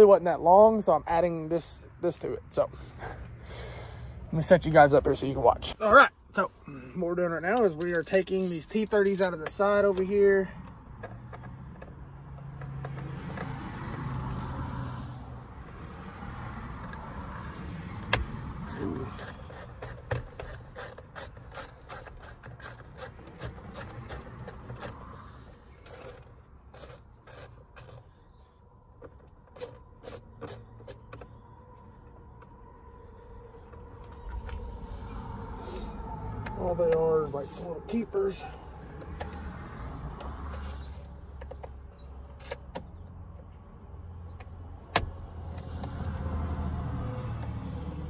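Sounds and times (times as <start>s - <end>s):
hand tool scraping: 18.6s - 25.2s, 25.8s - 28.2s, 29.5s - 31.2s.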